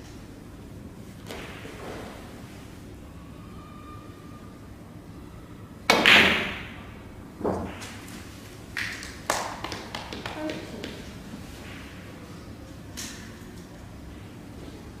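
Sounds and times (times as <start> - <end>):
snooker balls clicking: 8.8 - 11.2.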